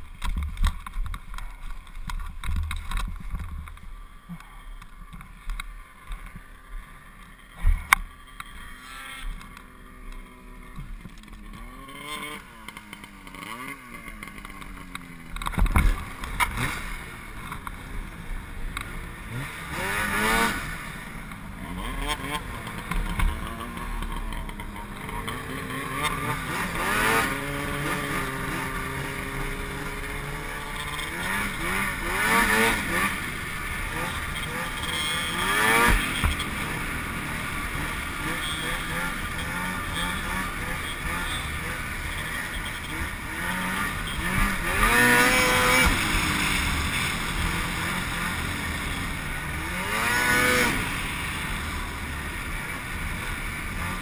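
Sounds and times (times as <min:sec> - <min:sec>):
snowmobile engines revving: 0:01.2 - 0:54.0.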